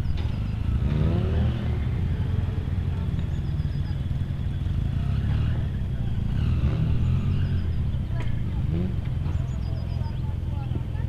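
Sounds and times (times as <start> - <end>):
utility vehicle engine at low revs: 0.0 - 11.0.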